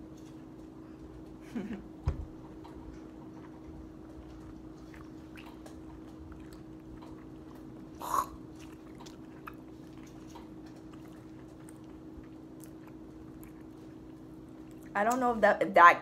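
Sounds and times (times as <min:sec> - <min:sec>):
wet mouth clicks chewing: 0:02.6 - 0:15.0
person spitting: 0:08.0 - 0:08.8.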